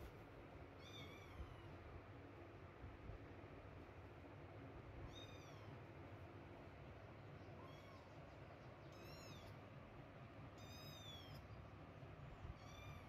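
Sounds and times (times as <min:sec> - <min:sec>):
kitten meowing: 0:00.8 - 0:01.7, 0:05.1 - 0:05.7, 0:07.6 - 0:08.1, 0:08.9 - 0:09.5, 0:10.6 - 0:11.4, 0:12.5 - 0:13.0.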